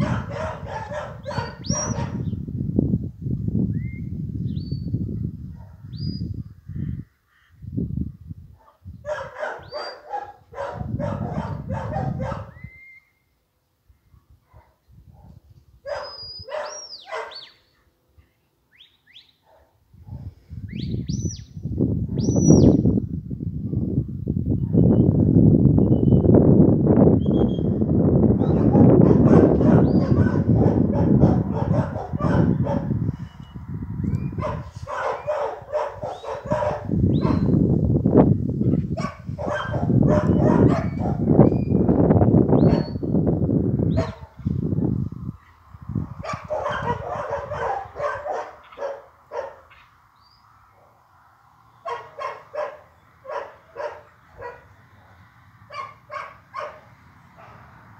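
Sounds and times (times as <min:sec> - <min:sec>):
dog barking: 0:00.0 - 0:02.3, 0:05.5 - 0:05.9, 0:08.6 - 0:12.6, 0:14.2 - 0:17.6, 0:19.4 - 0:20.3, 0:28.4 - 0:33.0, 0:34.3 - 0:37.6, 0:38.8 - 0:41.3, 0:42.6 - 0:43.0, 0:43.9 - 0:44.4, 0:46.2 - 0:49.9, 0:51.8 - 0:54.8, 0:55.7 - 0:57.8
wind buffeting microphone: 0:00.0 - 0:12.9, 0:13.9 - 0:16.8, 0:19.9 - 0:49.7
shepherd's whistle: 0:12.5 - 0:13.2, 0:16.0 - 0:17.6.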